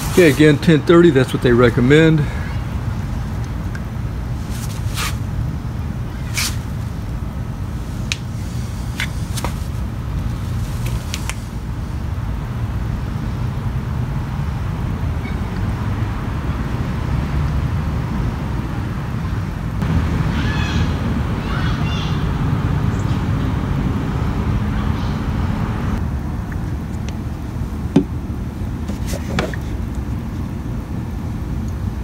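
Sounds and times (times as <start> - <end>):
low background rumble: 0.0 - 15.2.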